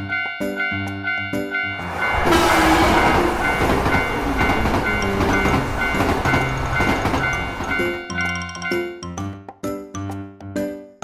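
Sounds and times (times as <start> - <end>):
crossing warning bell ringing: 0.0 - 9.2
train rushing past: 1.5 - 8.2.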